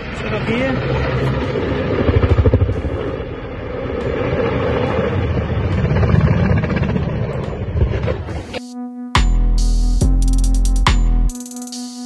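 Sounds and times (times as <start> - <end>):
helicopter flying overhead: 0.0 - 8.6.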